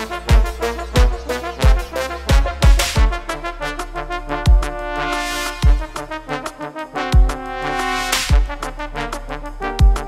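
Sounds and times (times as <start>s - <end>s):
deep kick drum beat: 0.0s - 3.4s, 4.5s - 4.8s, 5.6s - 6.0s, 7.2s - 7.4s, 8.3s - 8.6s, 9.8s - 10.0s
trombone ensemble playing: 0.0s - 10.0s.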